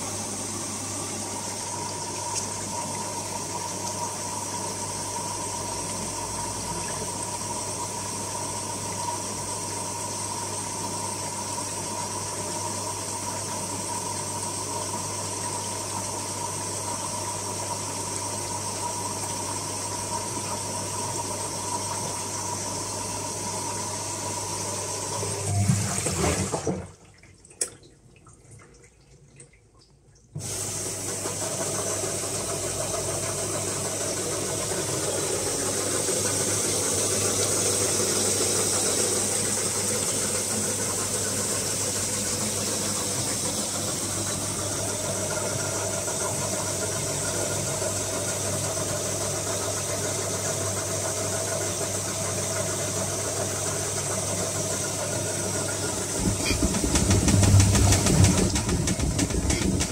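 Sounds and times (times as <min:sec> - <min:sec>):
low rumble from washer tub: 0:00.0 - 0:59.9
washing machine spinning: 0:00.0 - 0:59.9.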